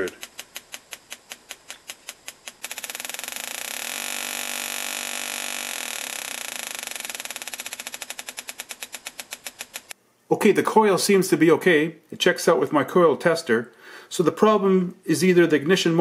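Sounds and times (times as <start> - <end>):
electric sparks snapping: 0.0 - 10.0.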